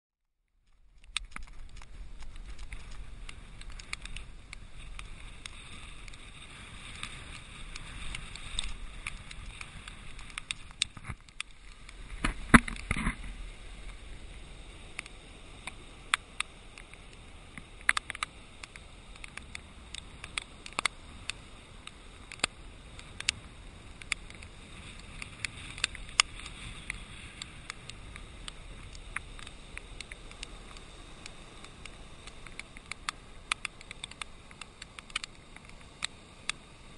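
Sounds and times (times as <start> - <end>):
storm surf and wind rushing: 1.0 - 36.9
clicks and knocks on camera: 7.7 - 13.3.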